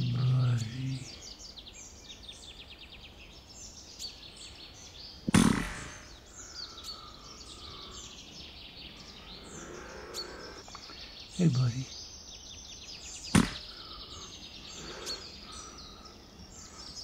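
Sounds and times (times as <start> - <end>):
small birds chirping: 0.0 - 17.0
air rifle shot: 5.3 - 6.2, 13.4 - 13.8.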